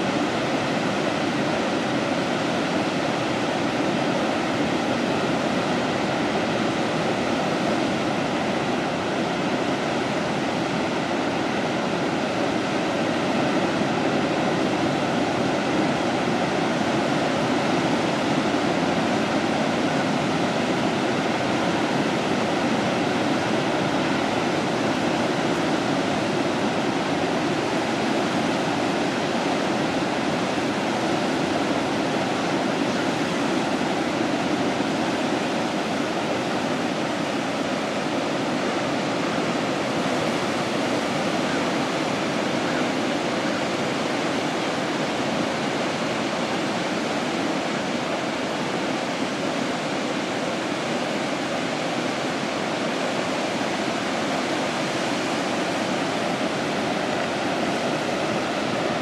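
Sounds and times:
surf breaking on beach: 0:00.0 - 0:59.0.

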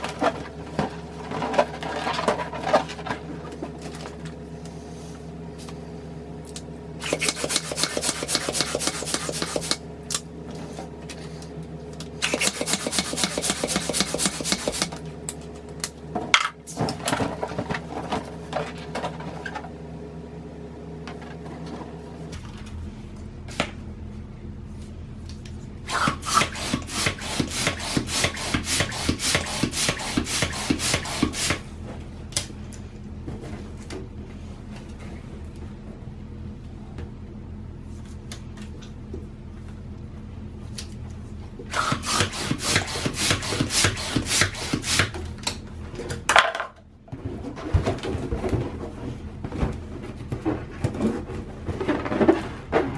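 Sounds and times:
balloon pump rasping air: 0:25.9 - 0:31.6, 0:41.7 - 0:45.2.

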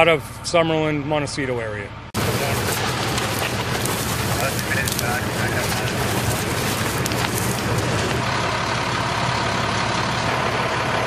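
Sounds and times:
fire engine idling: 0:02.1 - 0:11.0
sharp crackles: 0:02.2 - 0:08.4.

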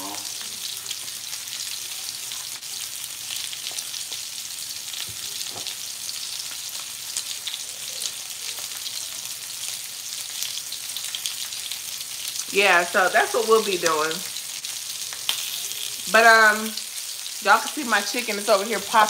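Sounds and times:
chicken sizzling in hot oil: 0:00.0 - 0:19.0
grease crackles and pops: 0:03.4 - 0:04.2, 0:14.1 - 0:16.2.

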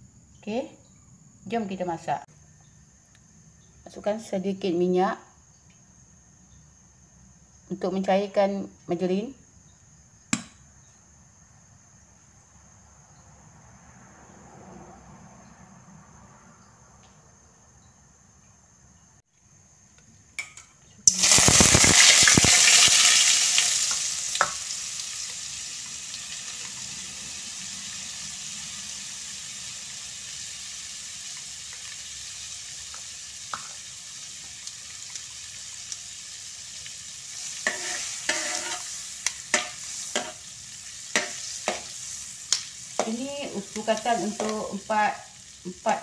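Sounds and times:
margarine sizzling in hot oil: 0:21.0 - 0:46.0
spatula scraping a wok: 0:37.3 - 0:43.2.

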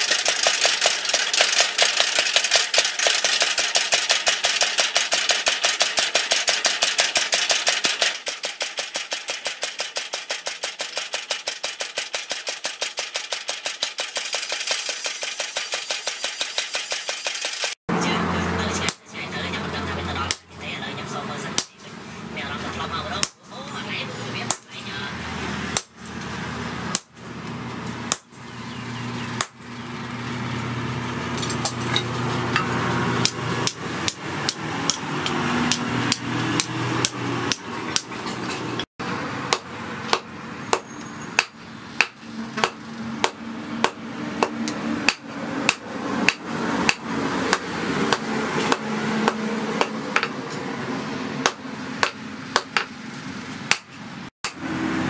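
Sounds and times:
hammer striking steel on anvil: 0:21.6 - 0:21.8.

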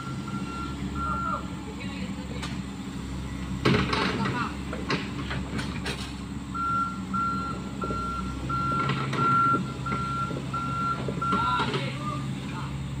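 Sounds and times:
backup alarm beeping: 0:00.0 - 0:01.4, 0:06.6 - 0:11.5
diesel engine running: 0:00.0 - 0:13.0.

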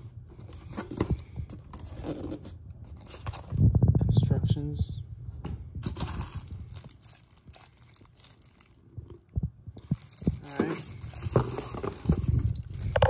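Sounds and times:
cardboard and wrapping rustling: 0:00.0 - 0:03.7, 0:05.8 - 0:13.0.

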